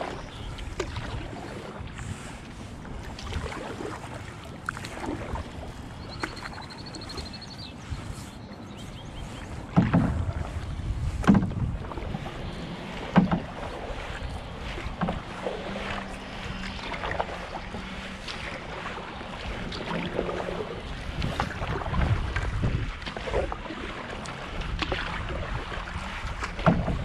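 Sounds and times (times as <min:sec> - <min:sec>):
canoe paddle strokes: 0:00.0 - 0:27.0
water lapping against hull: 0:00.0 - 0:27.0
wind buffeting microphone: 0:00.0 - 0:27.0
loud knocks or splashes: 0:09.7 - 0:12.1, 0:12.9 - 0:14.1, 0:26.4 - 0:27.0.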